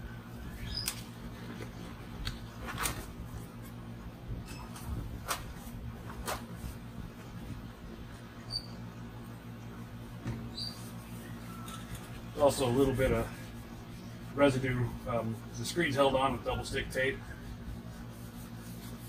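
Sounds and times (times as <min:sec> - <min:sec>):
steady low hum: 0:00.0 - 0:19.0
short squeak: 0:08.4 - 0:08.8, 0:10.5 - 0:10.8.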